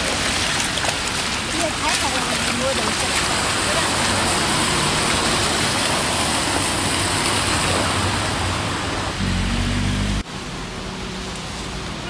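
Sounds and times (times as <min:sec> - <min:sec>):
storm water rushing and splashing: 0:00.0 - 0:12.0
wet street traffic: 0:00.0 - 0:12.0.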